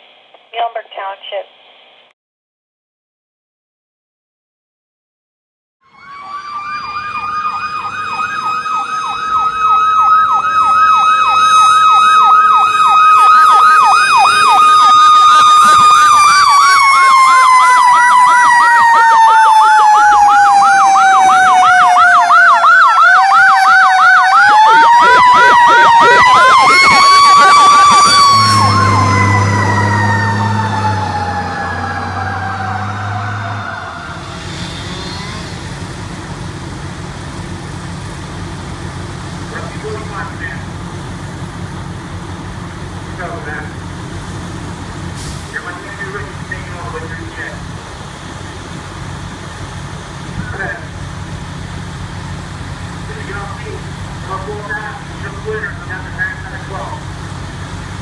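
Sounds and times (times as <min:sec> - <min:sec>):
siren electronic yelp: 0:05.8 - 0:35.8
siren wail: 0:05.8 - 0:36.4.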